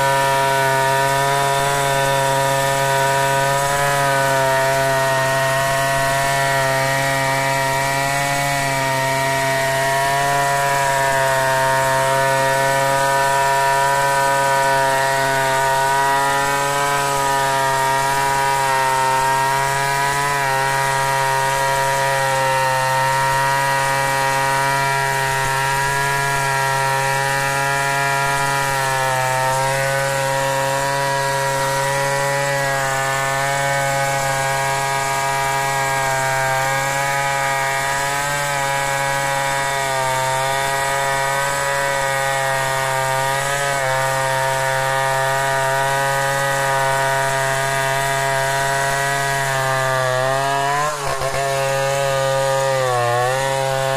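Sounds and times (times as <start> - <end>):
chainsaw at full throttle: 0.0 - 53.9.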